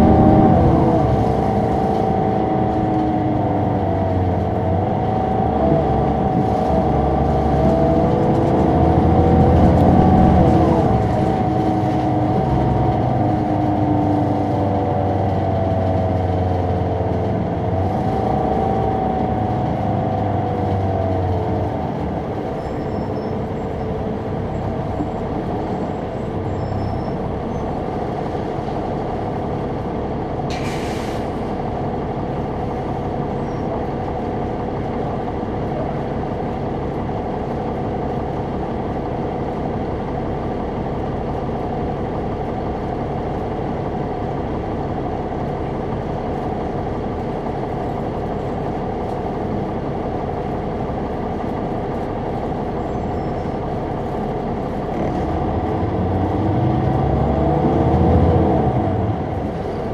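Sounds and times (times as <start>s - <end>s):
bus diesel engine: 0.0s - 59.9s
air brake hiss: 30.5s - 31.4s.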